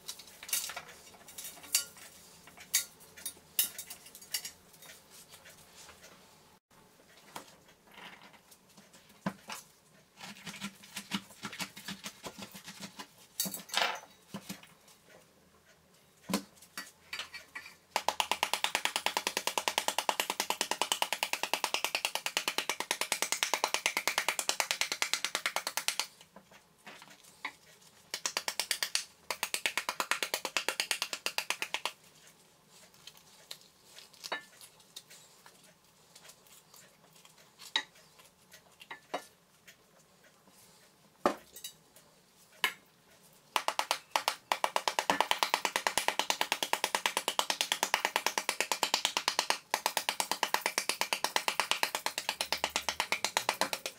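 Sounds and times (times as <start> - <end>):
wooden spoon beating fruit skin: 17.9 - 26.2, 28.1 - 32.0, 43.5 - 53.9.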